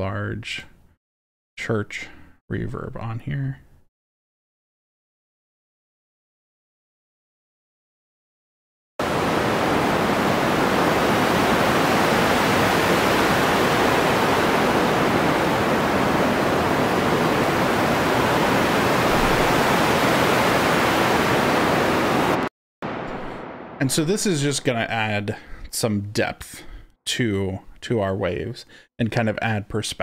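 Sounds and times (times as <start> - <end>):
synthesized ocean waves: 9.0 - 24.0.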